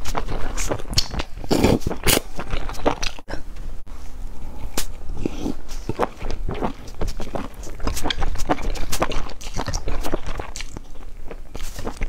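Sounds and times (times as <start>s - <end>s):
chewing: 4.5s - 12.0s.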